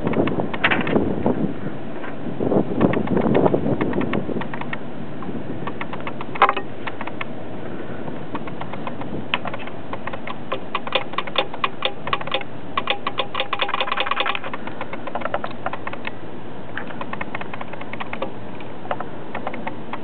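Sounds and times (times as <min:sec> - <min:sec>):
metal gears clicking: 0:08.4 - 0:16.1.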